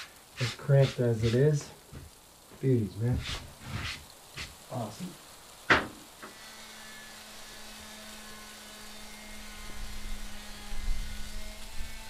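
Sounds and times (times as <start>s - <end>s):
sharp knock: 5.7s - 6.0s.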